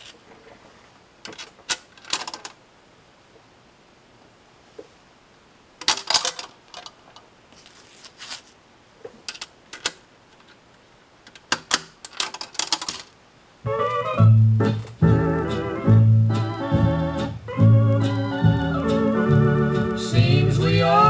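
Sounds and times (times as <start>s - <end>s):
coins clinking: 12.1s - 13.3s.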